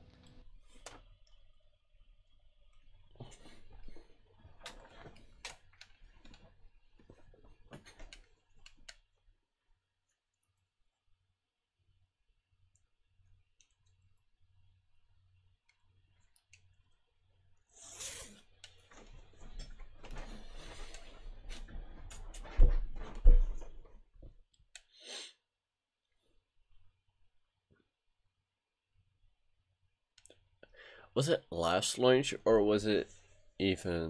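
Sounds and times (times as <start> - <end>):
rustling and shuffling: 17.8 - 24.4.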